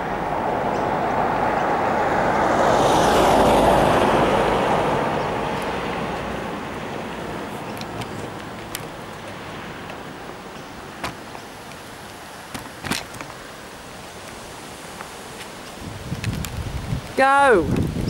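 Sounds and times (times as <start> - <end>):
vehicle driving past: 0.0 - 8.5.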